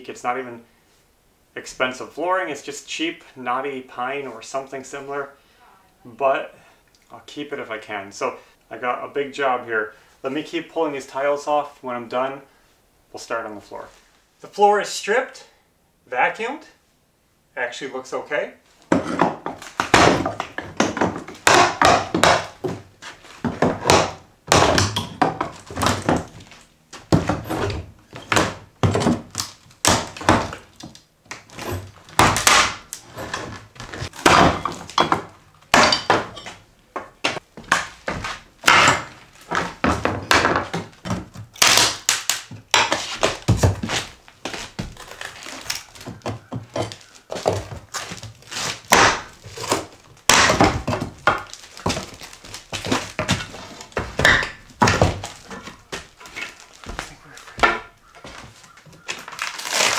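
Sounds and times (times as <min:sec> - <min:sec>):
pry bar knocking wooden boards: 0:18.9 - 0:22.8, 0:23.4 - 0:26.3, 0:31.6 - 0:33.4, 0:34.2 - 0:36.6, 0:37.2 - 0:41.3, 0:48.9 - 0:49.3, 0:50.3 - 0:52.0, 0:57.6 - 0:57.9.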